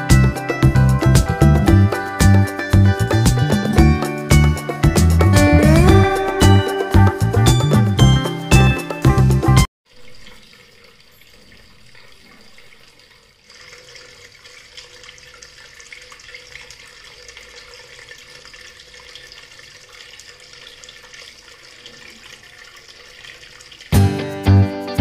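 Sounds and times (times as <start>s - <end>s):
fountain water splashing into basin: 9.9s - 24.4s.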